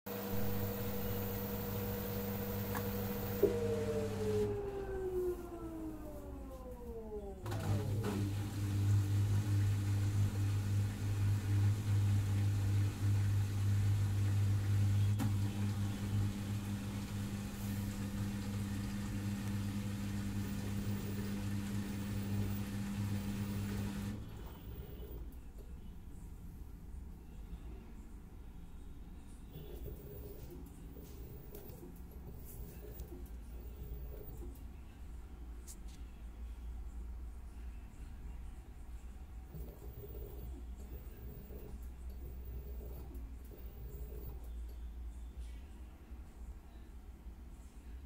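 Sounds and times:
low motor hum: 0.1 - 25.2, 39.5 - 44.6
washing machine motor whine: 0.1 - 25.4, 29.5 - 34.6, 39.5 - 44.7.

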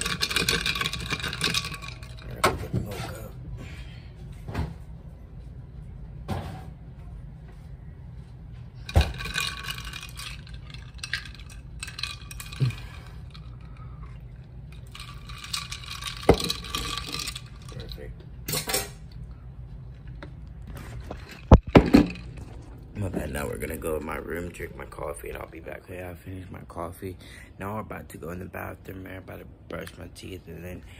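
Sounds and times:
ice cubes clinking in cup: 0.0 - 2.4, 8.9 - 13.5, 14.8 - 17.9.

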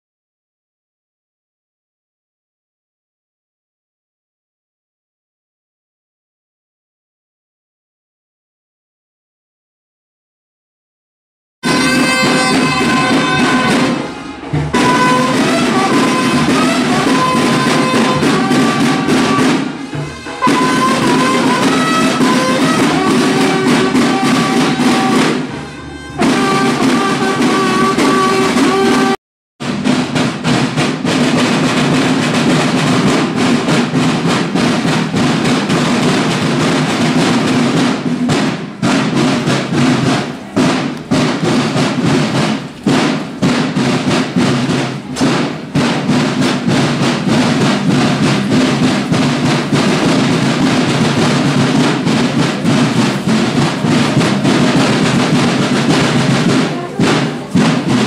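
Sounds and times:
bugle holding long notes: 11.6 - 29.2
field drums playing cadence: 11.6 - 58.0.

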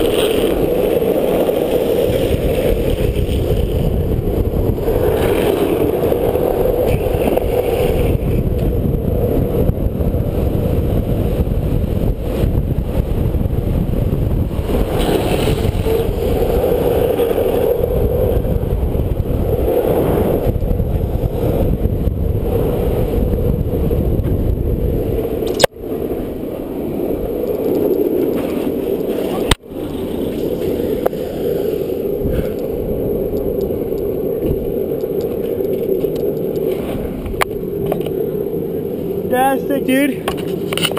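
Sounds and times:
skateboard wheels rolling on asphalt: 0.0 - 40.9
sharp clicks: 25.4 - 25.7.

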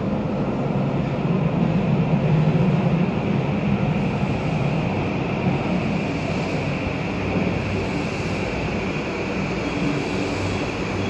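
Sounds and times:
electric train rumbling: 0.0 - 11.0.

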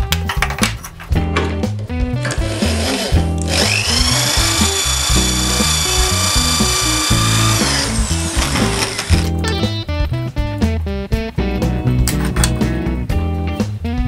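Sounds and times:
guitar music: 1.0 - 14.0
power drill boring into wood: 2.4 - 9.3.

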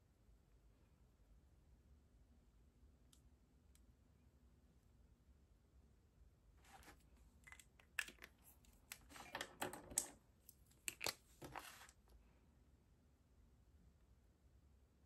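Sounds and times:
markers handled on a desk: 6.7 - 12.0.

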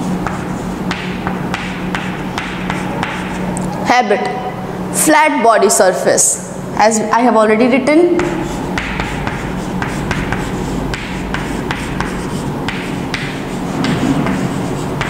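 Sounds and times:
chalk tapping and scratching: 0.0 - 3.5, 8.2 - 15.0
low steady hum: 0.0 - 15.0.

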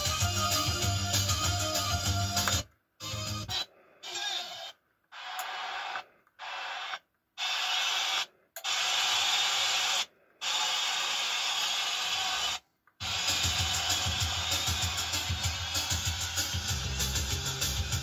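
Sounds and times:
music through a receiver: 0.0 - 3.7, 13.0 - 18.0.

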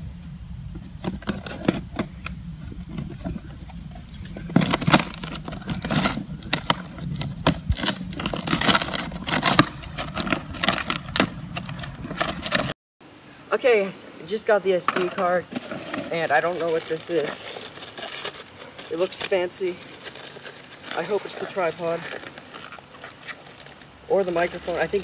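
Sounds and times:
steady low rumble: 0.0 - 12.6
rustling and scraping: 0.7 - 12.8, 14.7 - 25.0
cardboard box being opened: 4.4 - 12.7, 15.5 - 25.0
packing tape being cut: 16.3 - 23.8.

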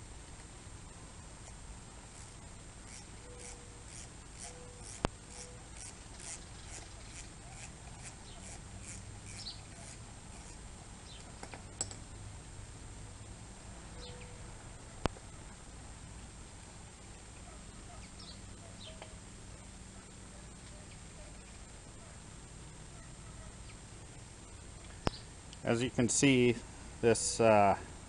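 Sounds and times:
ratchet wrench clicking: 2.2 - 10.6
faint bird chirps: 14.0 - 14.4, 17.9 - 19.2.

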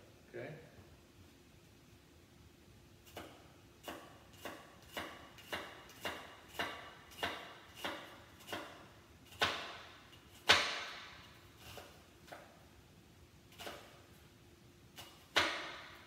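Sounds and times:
knife chopping on cutting board: 3.1 - 12.6, 13.6 - 14.0, 15.0 - 16.0.

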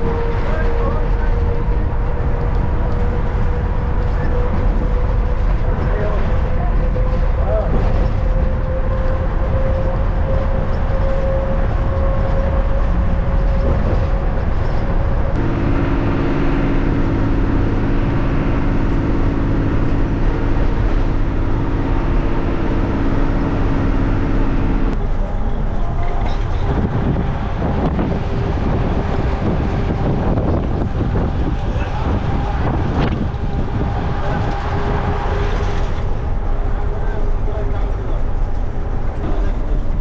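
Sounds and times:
bus engine and road noise: 0.0 - 40.0
steady drone: 15.3 - 25.7.

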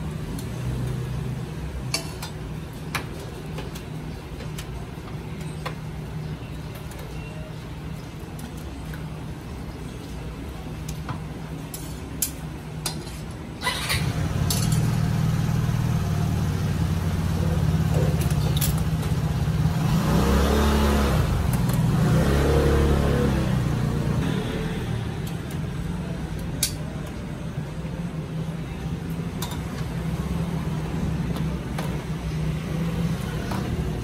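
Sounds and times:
vehicle engine revving: 19.2 - 25.0.

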